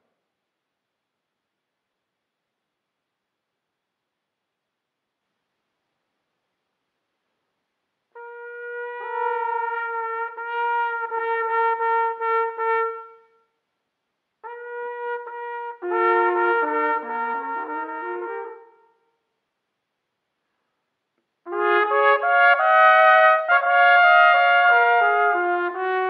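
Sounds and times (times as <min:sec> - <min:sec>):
brass horns playing slow duet: 0:08.2 - 0:13.4, 0:14.4 - 0:19.0, 0:21.5 - 0:26.0.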